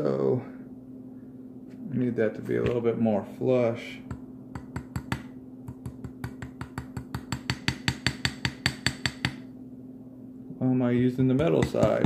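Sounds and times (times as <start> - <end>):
hammer tapping metal: 4.1 - 9.5, 11.3 - 12.0.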